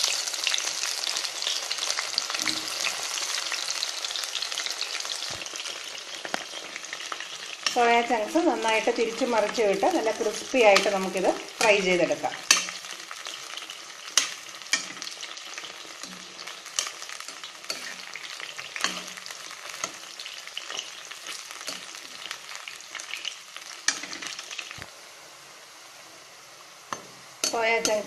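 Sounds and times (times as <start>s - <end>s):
food deep-frying in oil: 0.0s - 28.0s
metal spoon clinking on pan: 12.4s - 12.9s, 14.2s - 15.1s, 16.8s - 18.0s, 18.8s - 19.2s, 26.9s - 28.0s.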